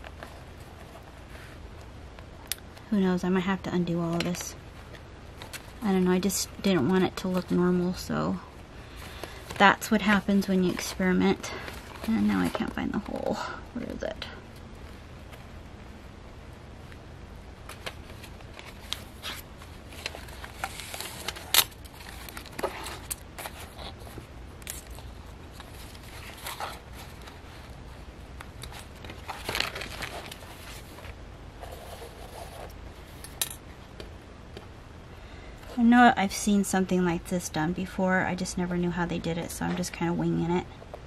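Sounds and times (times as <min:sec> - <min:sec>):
paper pages rustling: 0:17.6 - 0:33.2.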